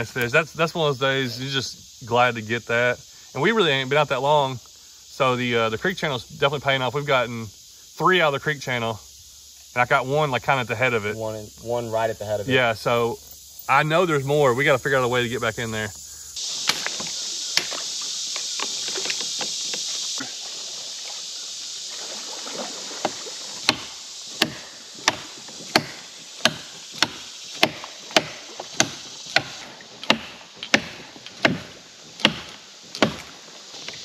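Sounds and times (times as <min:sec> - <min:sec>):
hand tool chopping tree limb: 0:16.6 - 0:17.8, 0:23.0 - 0:33.9.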